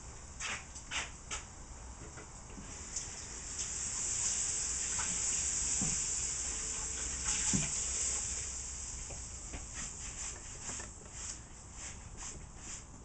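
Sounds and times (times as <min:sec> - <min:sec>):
fish sizzling in a pan: 0:02.7 - 0:10.0.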